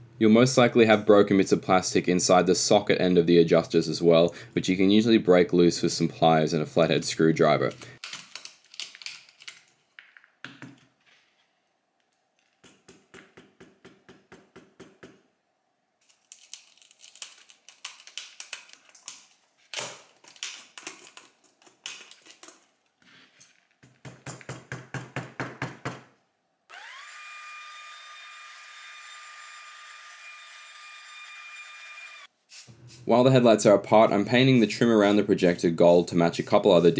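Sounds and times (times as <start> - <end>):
heat gun whining: 26.7 - 32.3.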